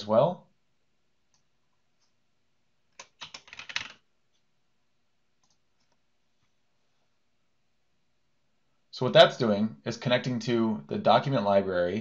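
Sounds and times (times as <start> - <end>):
keyboard typing: 2.9 - 4.1, 5.4 - 6.0.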